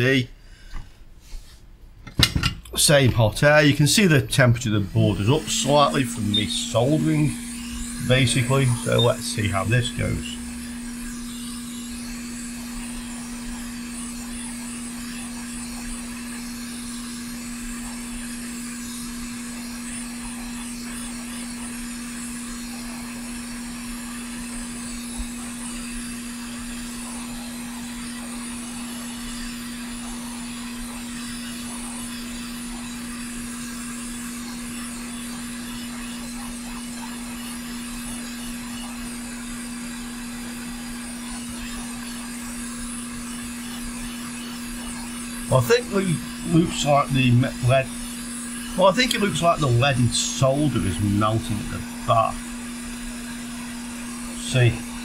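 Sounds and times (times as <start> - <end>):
hot air blower hum and hiss: 0.0 - 55.0.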